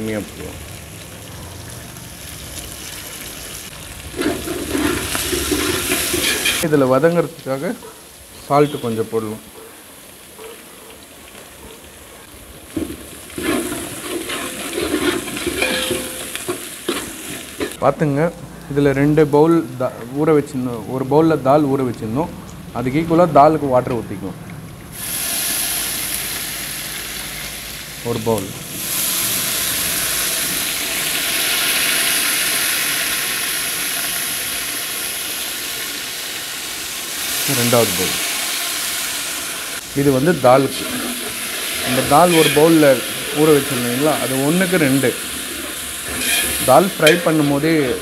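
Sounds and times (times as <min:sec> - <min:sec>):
food sizzling in oil: 0:00.0 - 0:11.6, 0:12.3 - 0:17.8, 0:24.9 - 0:48.0
metal ladle scraping pot: 0:04.2 - 0:06.7, 0:12.8 - 0:17.8, 0:40.4 - 0:48.0.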